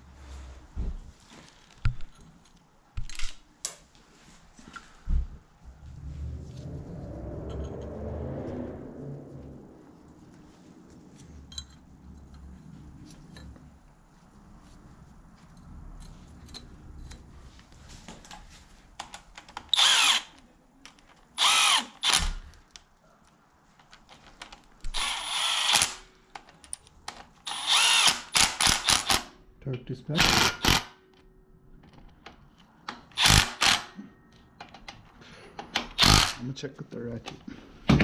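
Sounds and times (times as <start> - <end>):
cordless power tool driving bolts: 19.7 - 20.4, 21.4 - 22.5, 24.9 - 26.0, 27.4 - 29.3, 30.2 - 30.9, 33.0 - 34.0, 35.6 - 36.4.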